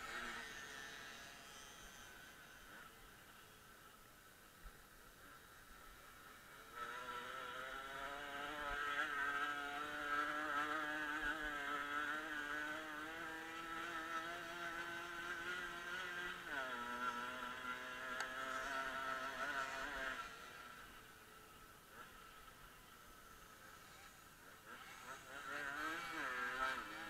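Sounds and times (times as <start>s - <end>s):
dirt bike engine running: 4.7s - 27.0s.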